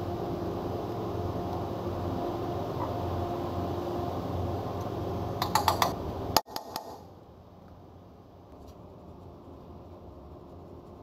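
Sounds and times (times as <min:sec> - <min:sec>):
shop hum: 0:00.0 - 0:11.0.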